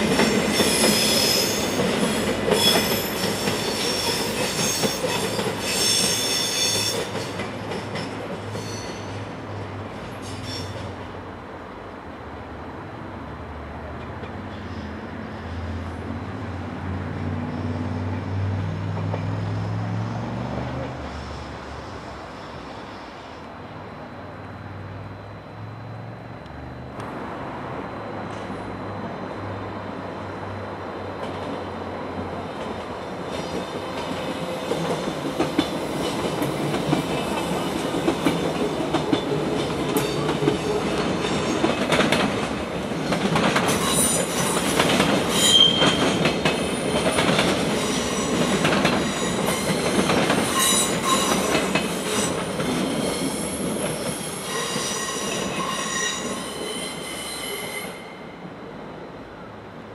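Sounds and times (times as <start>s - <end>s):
train wheels clicking over rail joints: 0.0s - 11.0s, 32.6s - 56.3s
high-pitched wheel squeals: 0.5s - 7.2s, 8.5s - 9.2s, 10.2s - 10.8s, 45.3s - 46.2s, 47.8s - 58.4s.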